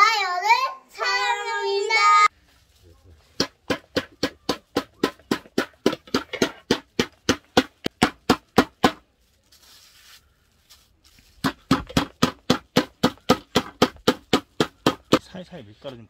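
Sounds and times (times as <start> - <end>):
meat mallet pounding: 3.4 - 9.0, 11.4 - 15.2.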